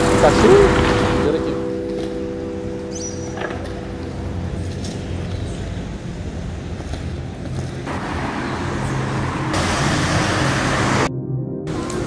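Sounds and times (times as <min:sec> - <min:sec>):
road noise hiss: 0:00.0 - 0:01.7, 0:04.3 - 0:11.1, 0:11.7 - 0:12.0
vehicle engines humming: 0:00.0 - 0:11.1, 0:11.7 - 0:12.0.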